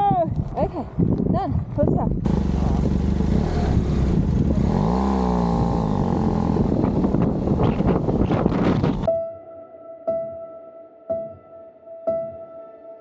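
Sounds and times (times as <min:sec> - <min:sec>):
motorcycle engine revving: 0:02.2 - 0:09.1.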